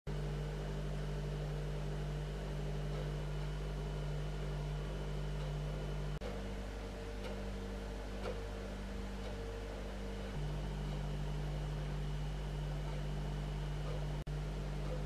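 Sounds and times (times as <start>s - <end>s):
low machine hum with hiss: 0.1s - 15.0s.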